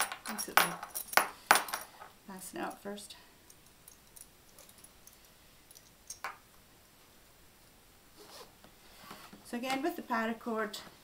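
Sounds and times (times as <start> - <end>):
soft rustle: 6.8 - 10.0.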